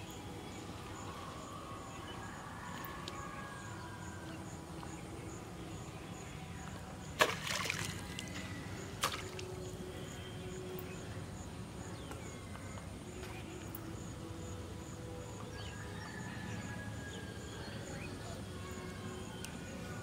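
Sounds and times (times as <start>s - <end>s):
fish splashing in water: 7.2s - 8.4s, 9.0s - 9.5s.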